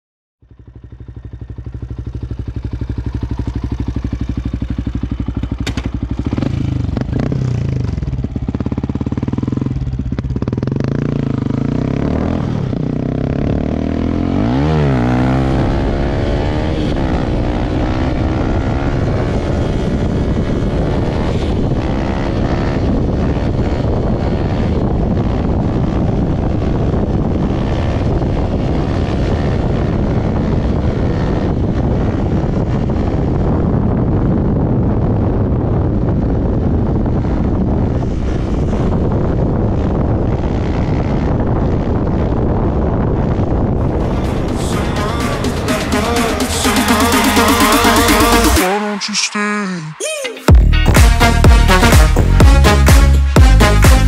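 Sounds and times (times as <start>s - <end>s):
motorcycle engine accelerating: 0.4s - 49.0s, 50.5s - 54.0s.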